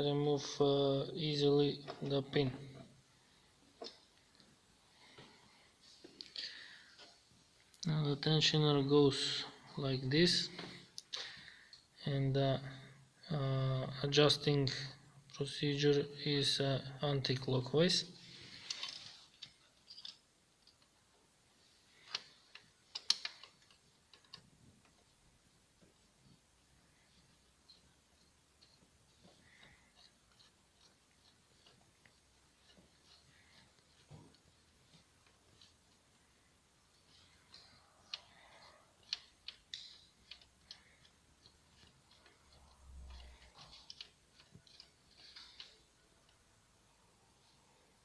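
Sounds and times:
metal parts clicking and tapping: 18.6 - 21.0, 22.0 - 46.4.

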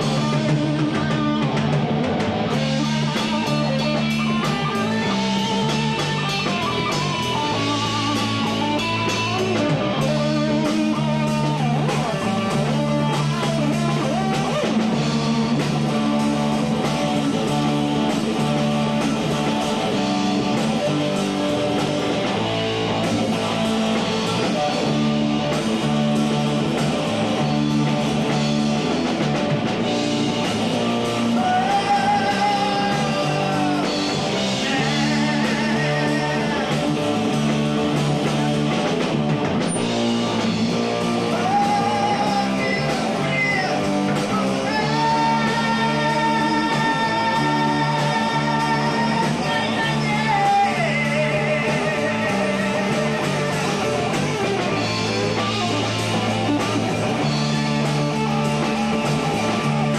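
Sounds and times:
bass guitar: 0.0 - 59.9
drum kit: 0.0 - 59.9
electric guitar: 0.0 - 59.9
person singing long notes: 31.2 - 37.2, 41.2 - 54.0.

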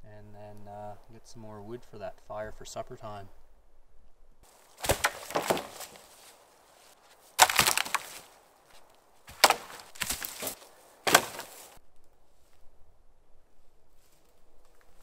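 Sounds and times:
wooden poles clattering: 4.5 - 8.4, 9.2 - 11.8.

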